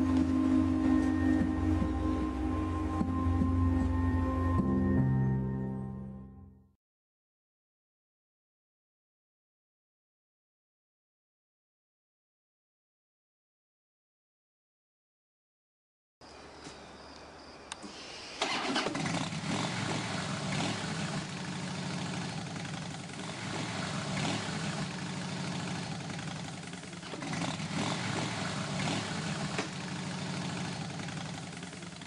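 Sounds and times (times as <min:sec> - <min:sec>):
motorcycle engine starting and idling: 0:17.8 - 0:32.0
motorcycle engine revving: 0:18.4 - 0:32.0.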